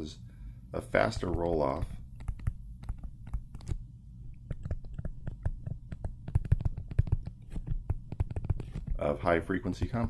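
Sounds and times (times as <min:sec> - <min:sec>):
low steady hum: 0:00.0 - 0:10.0
stylus tapping on tablet screen: 0:01.0 - 0:09.0.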